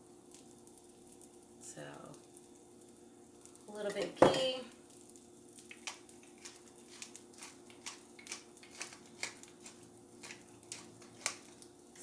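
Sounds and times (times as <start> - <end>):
faint steady hum: 0.0 - 12.0
pepper mill grinding clicks: 5.7 - 12.0.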